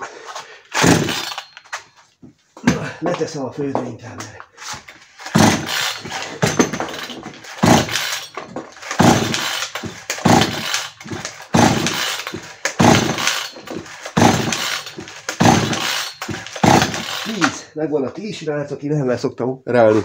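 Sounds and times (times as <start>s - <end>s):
chainsaw recoil starter pulls: 0.7s - 1.8s, 4.9s - 17.7s.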